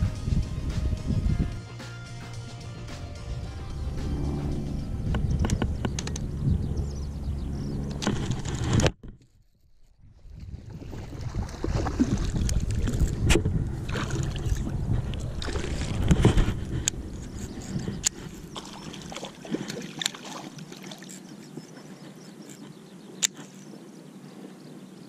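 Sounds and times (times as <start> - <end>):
wind rumble on microphone: 0.0 - 1.6, 3.2 - 20.0
sharp clicks: 5.1 - 6.3, 22.5 - 23.6.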